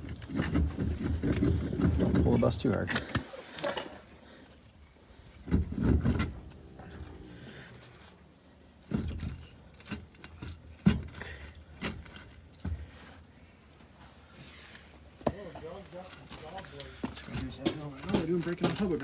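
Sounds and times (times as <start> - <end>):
wheel clunking on its hub: 0.0 - 3.2, 5.4 - 8.0, 15.2 - 19.0.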